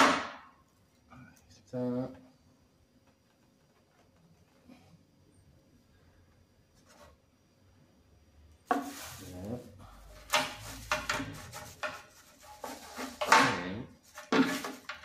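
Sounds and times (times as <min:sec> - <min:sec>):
plastic wrapping rustling: 0:08.7 - 0:15.0.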